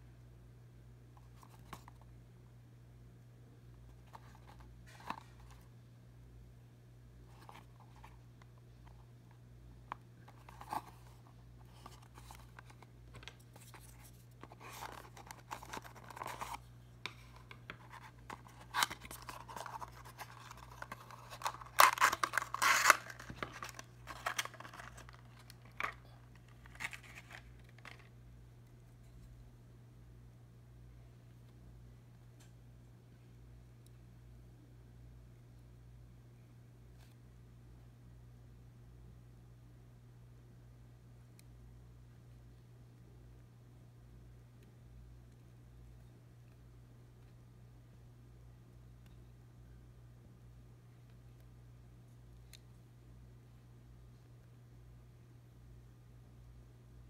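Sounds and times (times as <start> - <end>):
plastic tray scraping and crinkling: 17.2 - 26.0.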